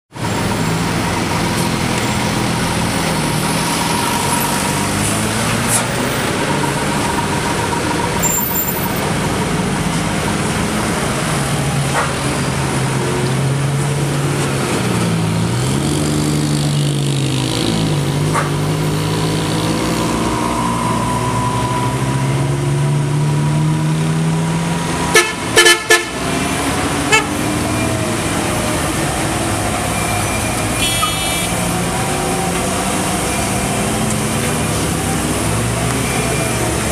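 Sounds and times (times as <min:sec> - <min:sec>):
diesel truck engines labouring: 0:00.1 - 0:36.9
short horn toots: 0:30.8 - 0:31.6.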